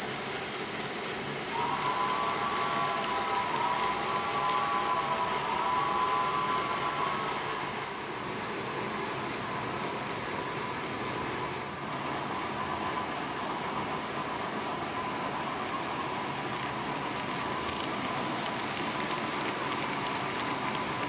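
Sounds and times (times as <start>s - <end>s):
model train motor whine: 0.0s - 8.2s, 16.0s - 21.0s
rail noise: 0.0s - 21.0s
steady background hiss: 0.0s - 21.0s.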